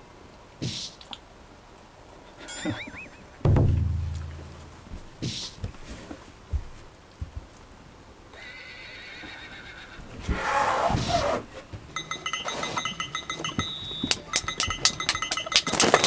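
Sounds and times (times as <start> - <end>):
horse whinnying: 2.3 - 3.4, 8.3 - 11.5.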